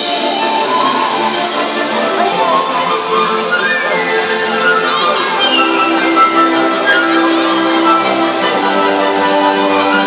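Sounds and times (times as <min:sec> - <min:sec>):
music over outdoor loudspeakers: 0:00.0 - 0:03.4
crowd talking: 0:00.0 - 0:10.0.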